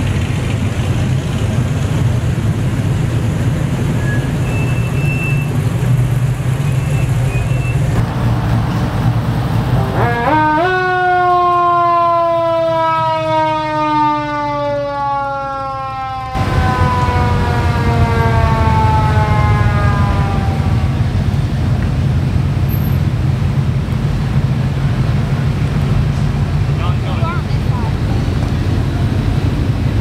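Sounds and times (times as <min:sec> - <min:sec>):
vehicle engines running: 0:00.0 - 0:30.0
mechanical siren winding down: 0:10.0 - 0:21.0.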